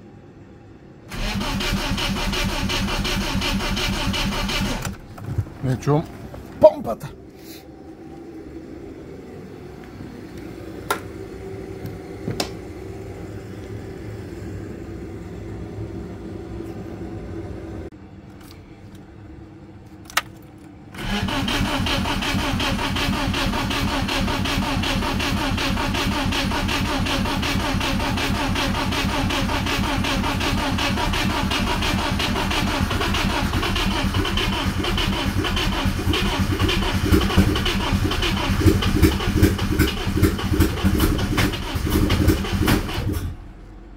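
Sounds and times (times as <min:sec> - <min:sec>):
engine cranked by starter: 0:01.1 - 0:07.0, 0:21.0 - 0:43.9
low steady hum: 0:02.0 - 0:22.1.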